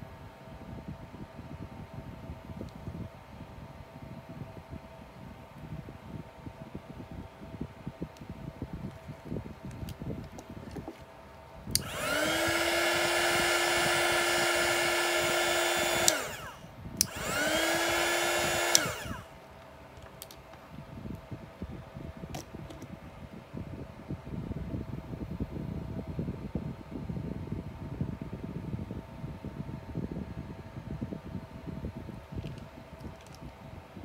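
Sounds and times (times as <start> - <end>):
heat gun fan motor whining: 8.2 - 23.0
heat gun switch click: 11.8 - 12.8, 15.8 - 19.2.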